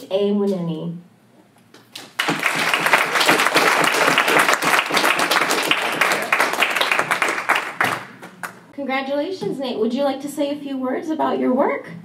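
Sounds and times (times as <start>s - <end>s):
audience applauding: 1.9s - 8.7s.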